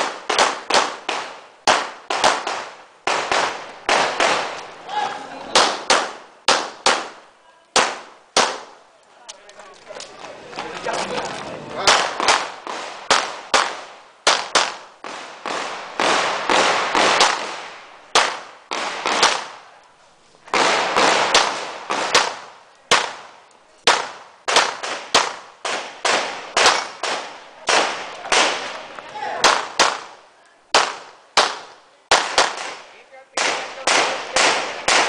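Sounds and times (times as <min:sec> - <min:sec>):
pistol shots with echo: 0:11.8 - 0:19.6, 0:20.5 - 0:23.2, 0:23.8 - 0:35.0.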